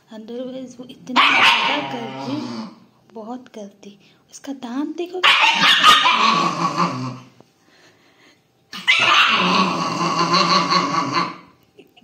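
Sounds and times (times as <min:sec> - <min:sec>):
puppy growling and snarling: 0:01.3 - 0:02.9, 0:05.5 - 0:07.4, 0:08.7 - 0:11.6.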